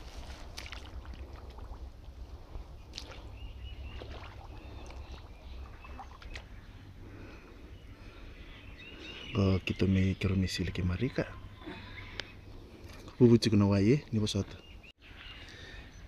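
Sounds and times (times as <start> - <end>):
water sloshing and splashing: 0.0 - 7.3, 12.7 - 13.4
bird chirps: 3.1 - 7.0, 7.7 - 13.5.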